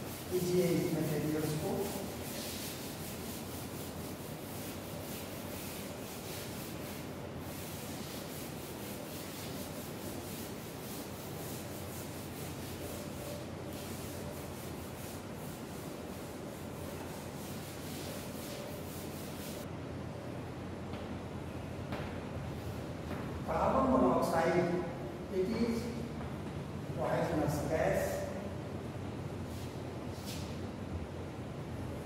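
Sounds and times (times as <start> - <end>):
eraser rubbing chalkboard: 0.0 - 19.7.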